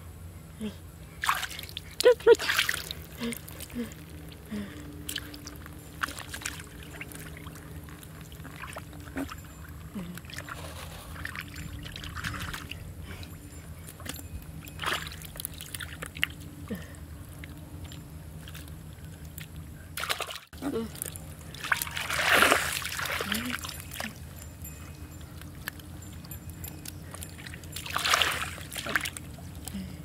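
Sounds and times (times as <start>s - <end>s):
low motor hum: 0.0s - 30.0s
hands sloshing through muddy water: 1.2s - 3.9s, 5.0s - 9.4s, 14.8s - 16.4s, 19.3s - 24.2s, 27.1s - 29.7s
small splashes: 1.2s - 3.9s, 19.3s - 24.2s, 27.4s - 29.2s.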